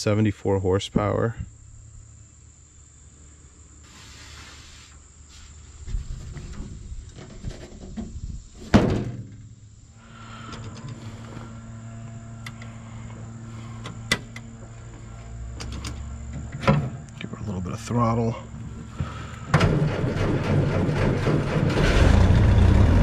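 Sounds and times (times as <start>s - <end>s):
metal hood slamming: 8.6s - 9.5s, 16.5s - 17.1s
engine starting and idling: 18.8s - 23.0s.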